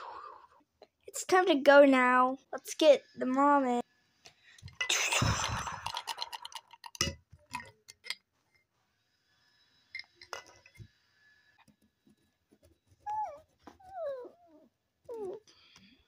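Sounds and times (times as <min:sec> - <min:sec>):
glass and plastic clinks: 0:04.6 - 0:05.1, 0:05.8 - 0:08.2, 0:09.9 - 0:10.9.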